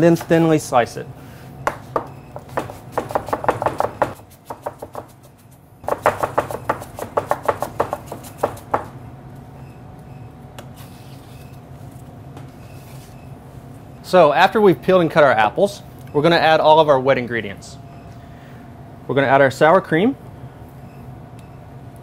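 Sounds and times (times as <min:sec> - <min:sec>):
knife chopping on cutting board: 0:01.7 - 0:08.9.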